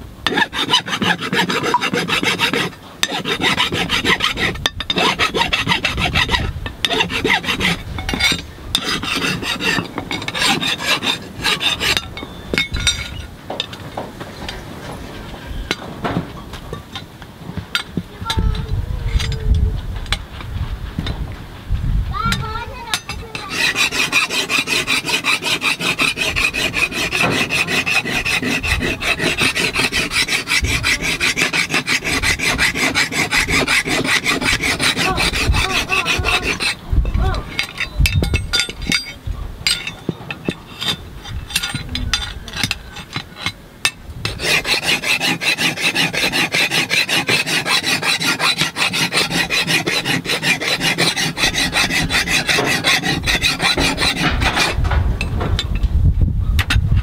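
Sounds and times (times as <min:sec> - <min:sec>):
hand file rasping on metal blade: 0:00.3 - 0:12.1, 0:22.9 - 0:43.6, 0:44.2 - 0:54.8.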